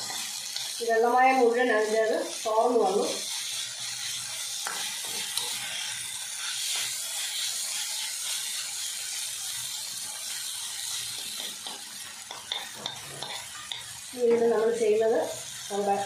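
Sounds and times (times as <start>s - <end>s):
food sizzling in a pan: 0.0s - 16.0s
metal spatula scraping a pan: 2.4s - 8.6s, 10.7s - 14.0s.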